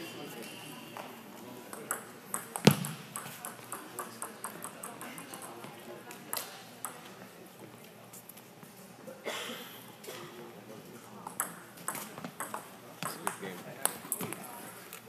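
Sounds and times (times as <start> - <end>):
racket hitting shuttlecock: 2.4 - 3.6.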